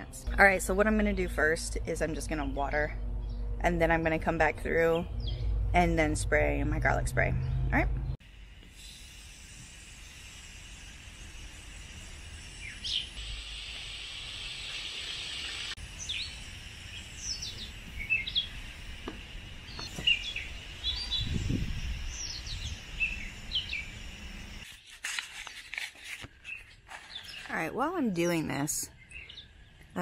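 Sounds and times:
water spraying from hose: 0:08.2 - 0:24.7
birds chirping and singing: 0:19.7 - 0:24.6, 0:26.5 - 0:29.9.

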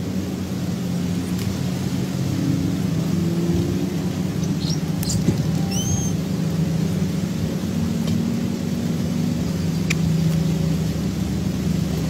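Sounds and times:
low engine rumble: 0:00.0 - 0:12.0
high-pitched bird chirps: 0:04.4 - 0:06.2.

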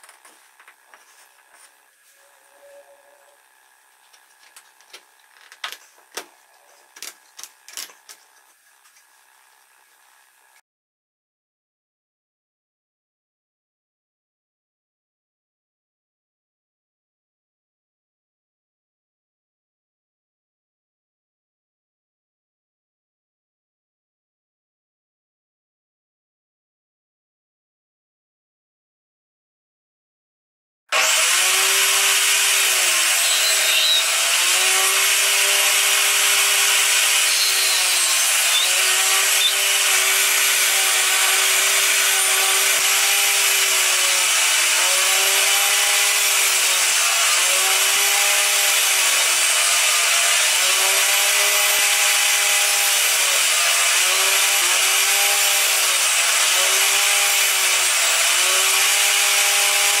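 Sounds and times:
table saw cutting wood: 0:00.0 - 0:08.8, 0:30.9 - 1:00.0.

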